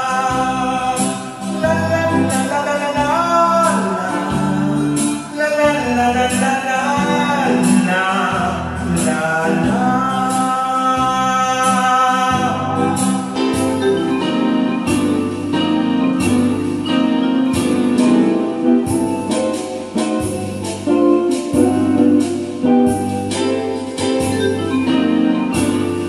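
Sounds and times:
man singing: 0:00.0 - 0:14.8
electronic keyboard: 0:00.0 - 0:26.0
steady drum beat: 0:14.9 - 0:24.9.

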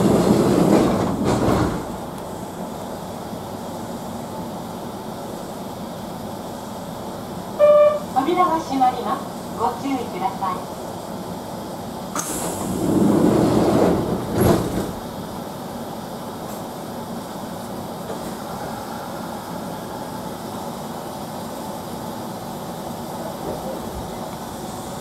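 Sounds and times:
train doors sliding shut: 0:00.0 - 0:02.6, 0:12.1 - 0:16.8, 0:17.9 - 0:20.2
train carriage hum: 0:00.0 - 0:25.0
door air hiss: 0:12.1 - 0:15.2.

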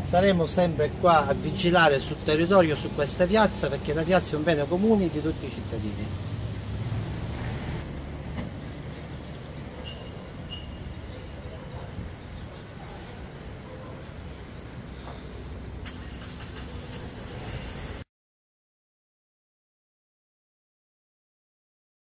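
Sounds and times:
road traffic rumble: 0:00.0 - 0:18.1
faint high chirps: 0:09.0 - 0:15.5.

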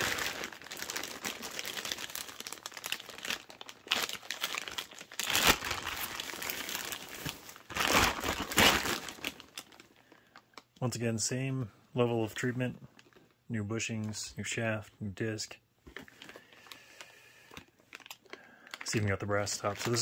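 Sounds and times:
plastic bag and bubble wrap crinkling: 0:00.0 - 0:10.9, 0:17.6 - 0:20.0.

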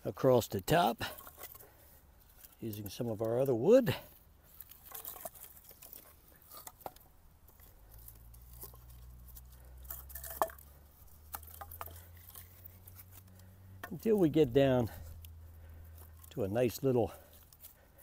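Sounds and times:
firewood knocking and clattering: 0:04.6 - 0:07.8, 0:09.8 - 0:12.5.

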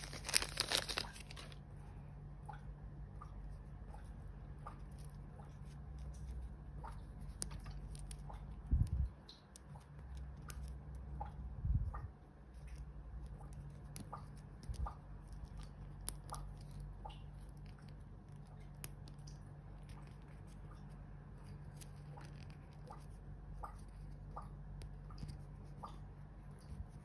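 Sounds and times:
fingers handling plastic doll: 0:00.0 - 0:01.6
faint low hum: 0:00.0 - 0:27.0.

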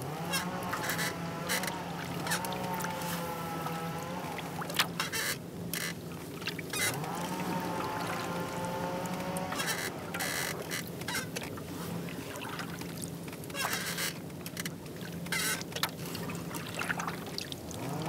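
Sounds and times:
steady low hum: 0:00.0 - 0:18.0
paddle splashing in water: 0:00.3 - 0:18.0
water dripping: 0:06.9 - 0:09.5.

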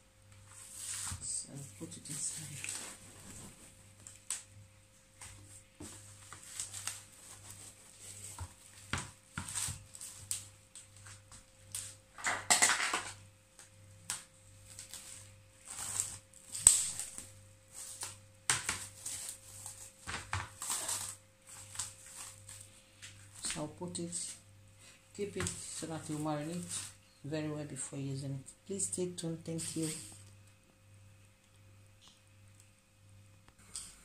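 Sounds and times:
cling film crinkling: 0:14.1 - 0:24.2.

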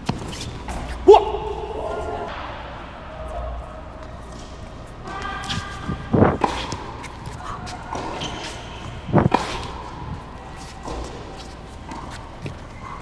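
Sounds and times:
racquet hitting tennis ball: 0:05.4 - 0:10.2.

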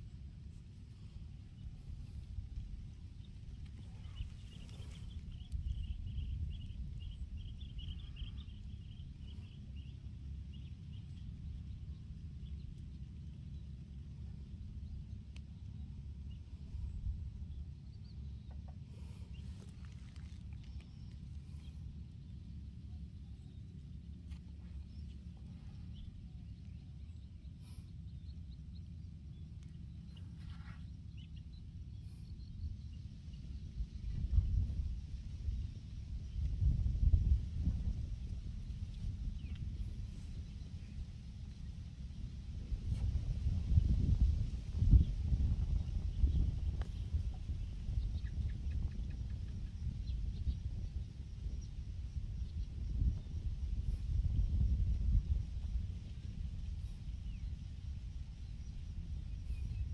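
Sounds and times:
wind rumbling on microphone: 0:00.0 - 0:59.9
bird chirps: 0:03.2 - 0:12.8.

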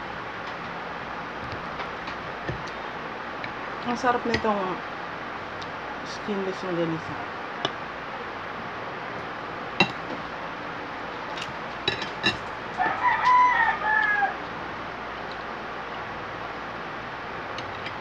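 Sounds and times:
rooster crowing: 0:12.7 - 0:14.6.

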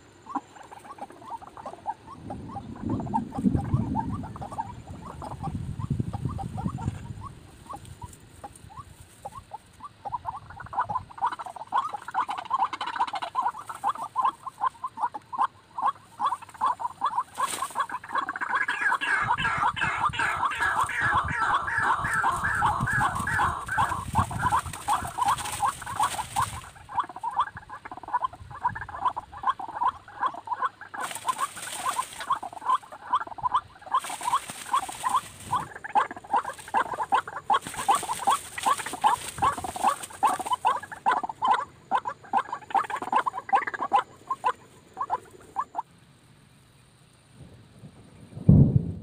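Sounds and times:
bird calling harsh notes: 0:16.2 - 0:27.5, 0:29.0 - 0:45.7
loud low thump: 0:48.5 - 0:49.0.

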